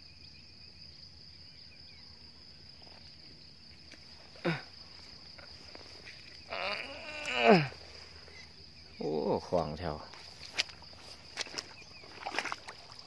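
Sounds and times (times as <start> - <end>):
high-pitched insect buzz: 2.7 - 8.9.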